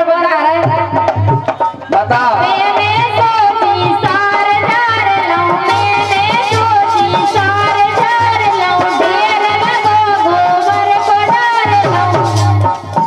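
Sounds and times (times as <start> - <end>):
harmonium: 0.0 - 13.0
hand drum beat: 0.6 - 13.0
woman singing folk song: 2.2 - 12.4.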